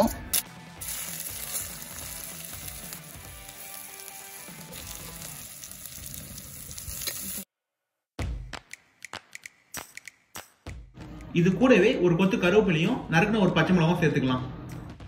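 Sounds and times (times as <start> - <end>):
onions sizzling in oil: 0.7 - 7.5.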